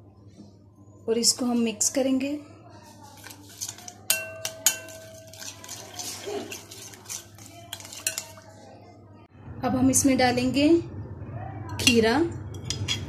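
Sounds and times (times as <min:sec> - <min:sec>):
metal spoon clinking on glass bowl: 0:03.6 - 0:08.4, 0:11.7 - 0:13.0.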